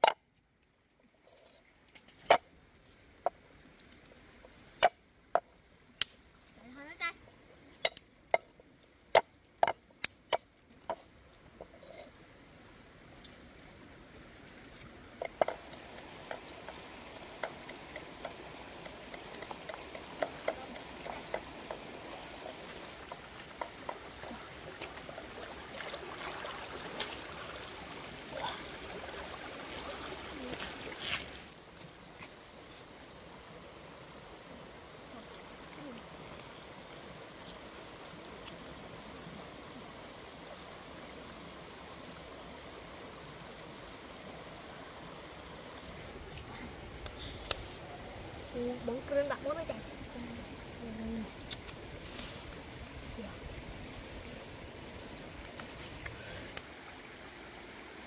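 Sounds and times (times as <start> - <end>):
stream water rushing: 1.0 - 58.0
small crackles: 1.2 - 4.2, 48.7 - 56.7.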